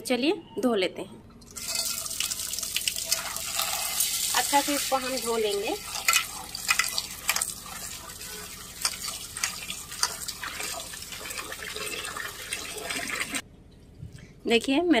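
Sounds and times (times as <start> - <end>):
tap water running into metal pot: 1.5 - 13.4.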